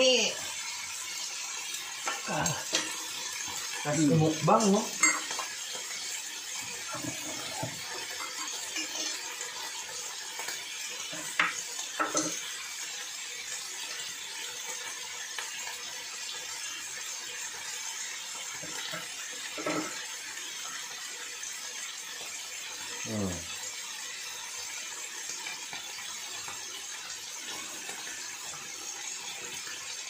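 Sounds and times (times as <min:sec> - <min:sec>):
fish sizzling on grill pan: 0:00.0 - 0:30.0
utensils clicking against pan: 0:02.0 - 0:06.0, 0:06.8 - 0:09.6, 0:10.3 - 0:12.6.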